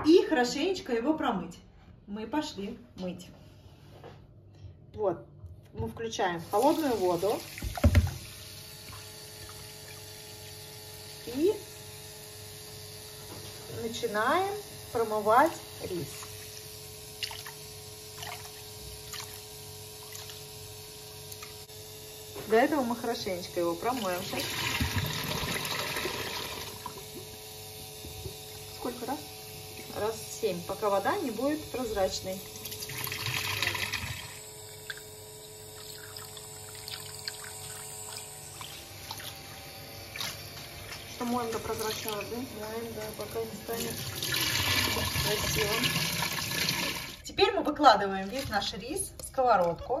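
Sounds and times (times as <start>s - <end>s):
tap water running into bowl: 6.5s - 10.1s, 24.0s - 27.1s, 32.6s - 39.4s, 40.1s - 47.2s.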